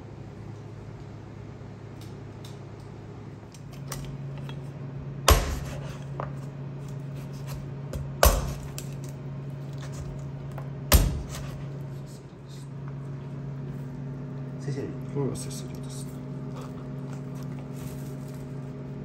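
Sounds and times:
steady low hum: 0.0s - 19.0s
knife striking cutting board: 5.3s - 6.0s.

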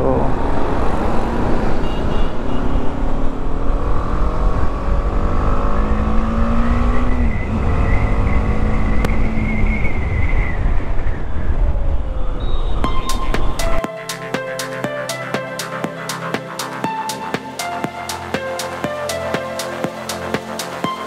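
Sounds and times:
motorcycle engine accelerating: 3.2s - 9.9s
wind rush: 9.1s - 13.8s.

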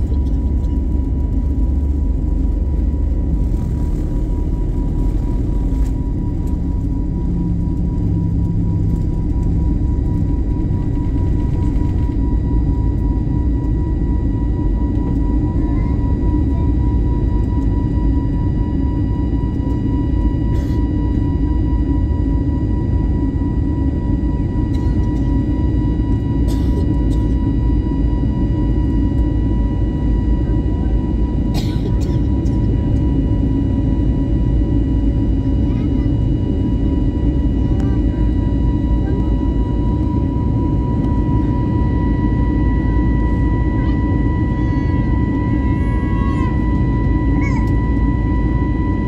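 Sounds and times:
jet engines rumbling: 0.0s - 49.0s
steady engine whine: 0.0s - 49.0s.

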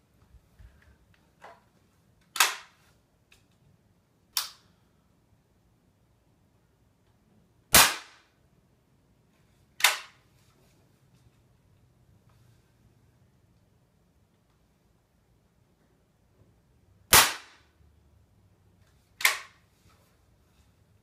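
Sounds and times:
air rifle firing crack: 2.4s - 2.7s, 7.7s - 8.3s, 17.1s - 17.6s.

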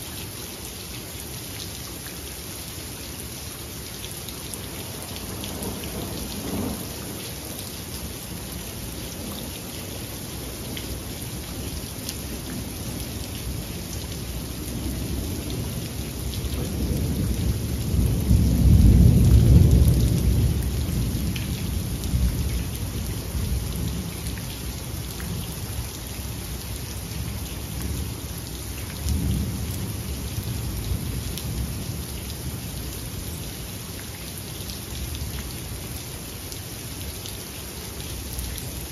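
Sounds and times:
steady rain: 0.0s - 38.9s
thunder rumbling: 16.6s - 21.4s.

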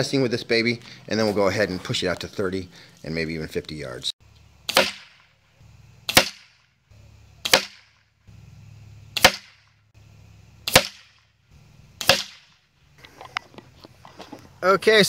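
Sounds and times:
air rifle shots cracking: 4.6s - 5.3s, 6.1s - 6.7s, 7.4s - 8.1s, 9.1s - 9.8s, 10.6s - 11.3s, 12.0s - 12.6s.

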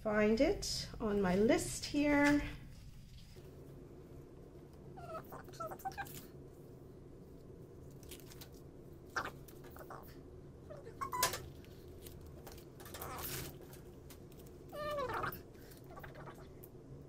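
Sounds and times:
low steady hum: 0.0s - 17.0s
paper rustling and crinkling: 7.8s - 8.6s, 11.1s - 15.7s
high squeaky chirps: 10.8s - 11.5s.

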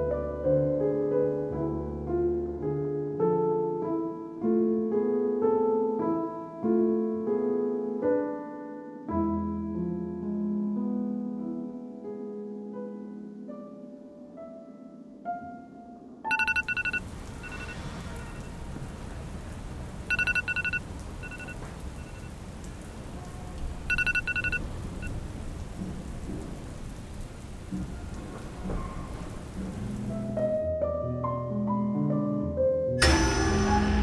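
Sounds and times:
electronic alarm beeps: 16.3s - 17.8s, 20.1s - 22.3s, 23.9s - 25.1s.

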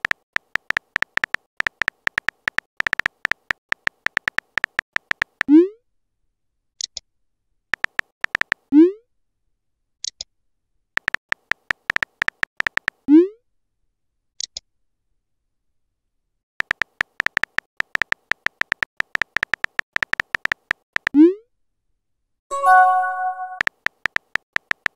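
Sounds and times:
keyboard tap clicks: 16.6s - 21.1s.

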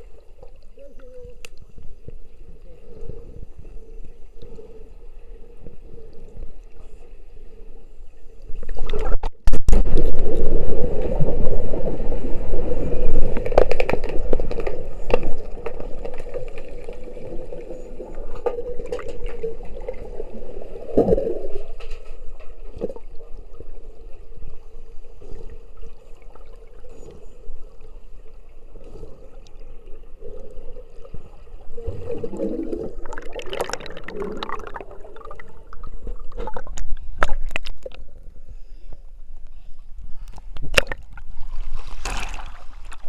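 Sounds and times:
underwater hum: 0.0s - 43.0s
water rushing: 31.7s - 37.9s.

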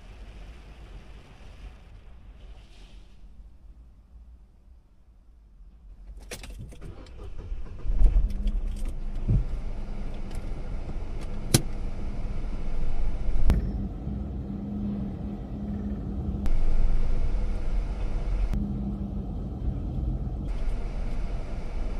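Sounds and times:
car engine idling: 6.9s - 21.9s.

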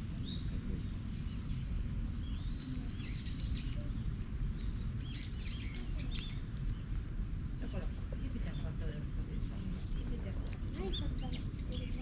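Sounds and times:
small birds chirping: 0.0s - 12.0s
steady low rumble: 0.0s - 12.0s.

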